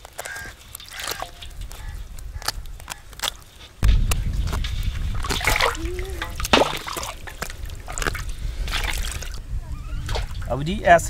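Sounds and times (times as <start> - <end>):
water splashing in a metal pot: 0.3 - 2.1, 4.9 - 9.4.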